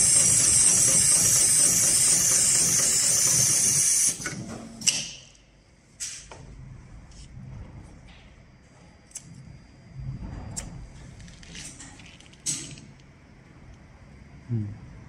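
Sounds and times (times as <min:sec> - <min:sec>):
rope sewing machine running: 0:00.0 - 0:04.5.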